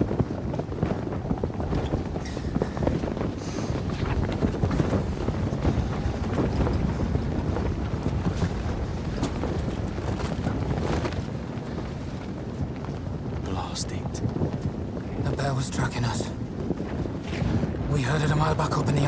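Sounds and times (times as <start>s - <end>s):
hailstones hitting canvas tent: 0.0s - 19.0s
steady wind: 0.0s - 19.0s.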